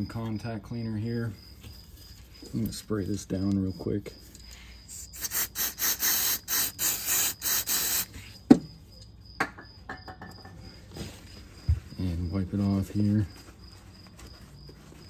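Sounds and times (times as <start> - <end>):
aerosol spray hissing bursts: 5.0 - 8.2.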